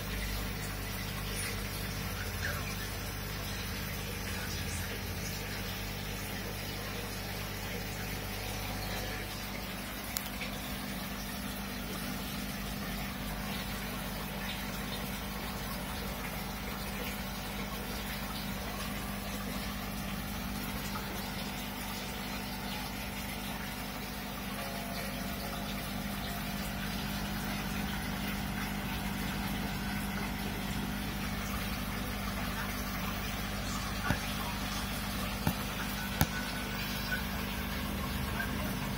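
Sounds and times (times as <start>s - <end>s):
aquarium filter pump humming: 0.0s - 38.9s
moving water: 0.0s - 38.9s.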